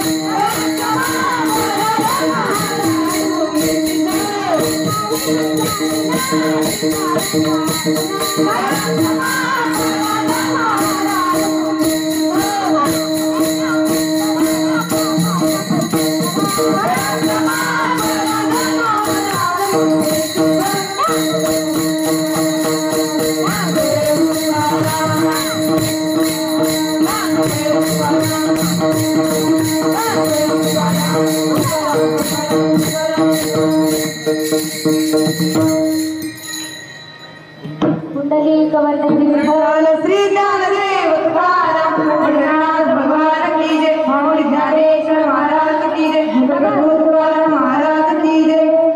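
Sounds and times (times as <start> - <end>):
people singing: 0.0 - 34.6, 39.2 - 48.9
hand cymbals clashing: 0.0 - 38.2.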